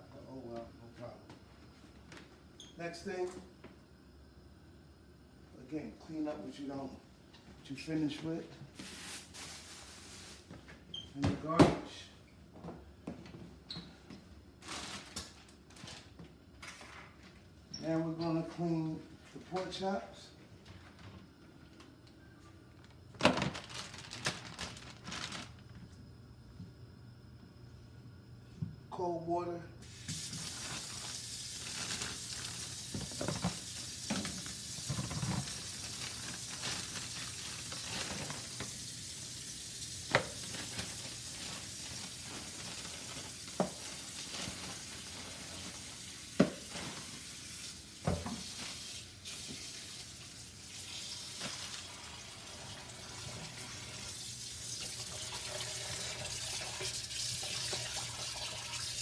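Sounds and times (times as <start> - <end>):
water running from a tap: 29.8 - 46.4, 47.1 - 59.0.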